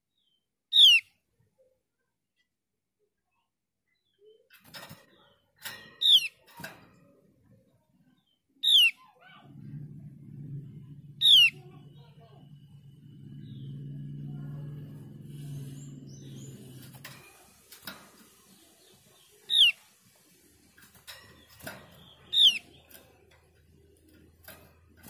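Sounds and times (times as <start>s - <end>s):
low murmur: 9.2s - 25.0s.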